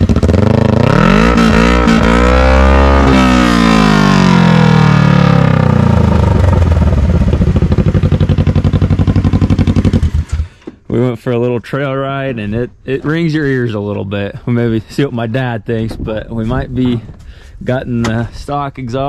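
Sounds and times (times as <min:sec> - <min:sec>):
engine revving and idling: 0:00.0 - 0:10.6.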